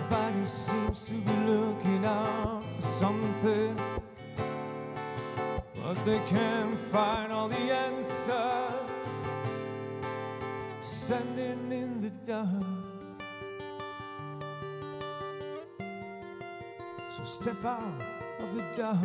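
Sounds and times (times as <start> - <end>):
man singing: 0.0 - 4.2, 5.6 - 9.4, 10.7 - 13.2, 17.1 - 19.0
strummed acoustic guitar: 0.0 - 19.0.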